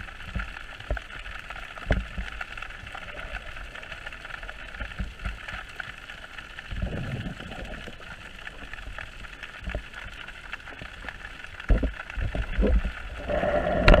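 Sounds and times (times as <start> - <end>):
underwater water hiss: 11.0 - 14.0.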